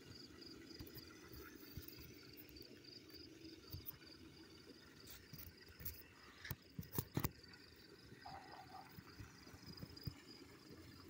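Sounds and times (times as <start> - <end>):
insect-like chirping: 0.0 - 11.0.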